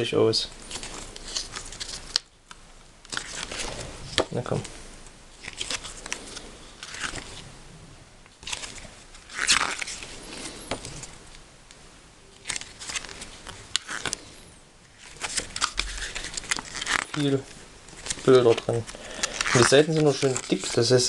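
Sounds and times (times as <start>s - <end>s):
paper rustling: 0.5s - 2.3s, 3.1s - 4.8s, 5.4s - 7.4s, 8.4s - 11.2s, 12.4s - 21.0s
pages clicking apart: 0.7s - 4.6s, 5.4s - 7.4s, 8.4s - 11.0s, 12.4s - 14.3s, 15.0s - 21.0s.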